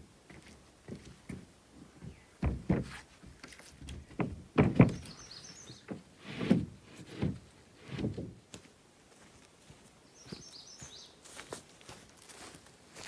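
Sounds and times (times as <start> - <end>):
footsteps on wooden boards: 0.2 - 13.0
wooden sheet knocking on deck: 2.4 - 2.9, 4.1 - 5.1.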